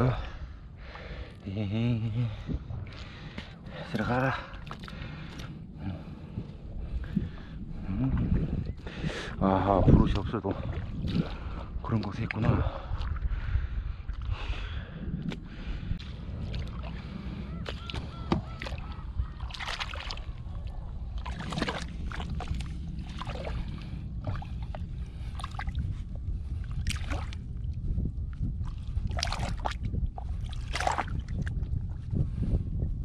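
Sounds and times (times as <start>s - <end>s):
low rumble: 0.0s - 33.0s.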